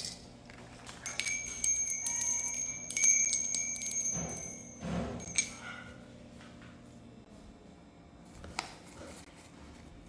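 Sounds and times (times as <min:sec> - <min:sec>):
small metal bells jingling: 0:01.0 - 0:05.6.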